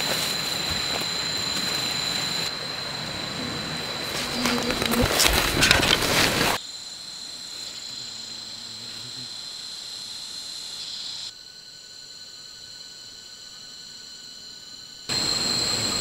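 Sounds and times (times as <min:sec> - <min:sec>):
footsteps through grass and leaves: 0:00.0 - 0:02.4
insects chirring: 0:00.0 - 0:16.0.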